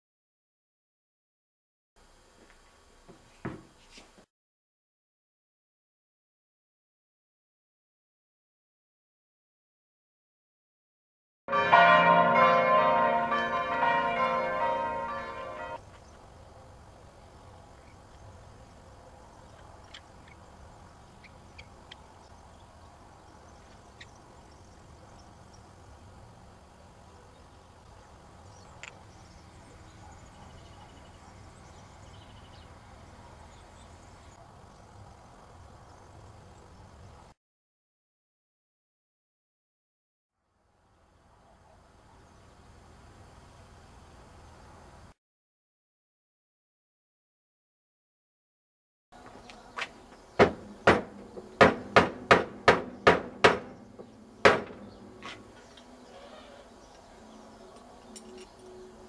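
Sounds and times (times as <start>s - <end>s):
distant bird chirps and trills: 15.8s - 35.0s, 49.2s - 59.0s.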